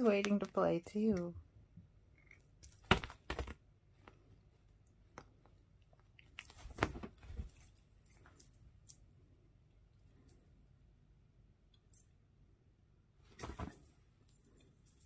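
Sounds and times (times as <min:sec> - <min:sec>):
rustling and clatter: 0:06.4 - 0:09.0, 0:13.3 - 0:15.0.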